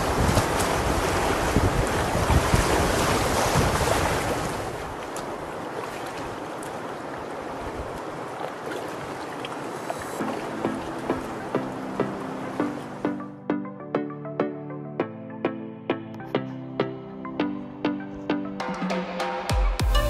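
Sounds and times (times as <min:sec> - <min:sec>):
wind buffeting microphone: 0:00.0 - 0:09.3
rushing river water: 0:00.0 - 0:13.4.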